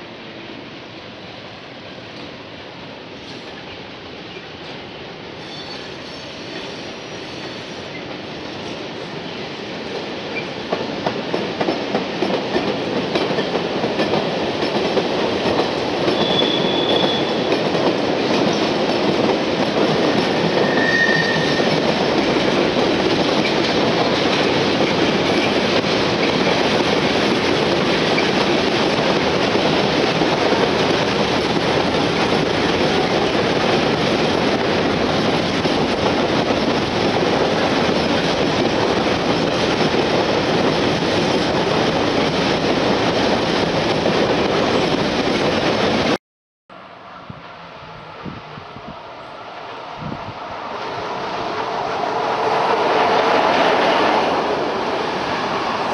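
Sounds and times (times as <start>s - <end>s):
train wagons rolling on rails: 3.2s - 45.6s
high wheel squeals: 16.2s - 17.3s, 20.5s - 21.7s.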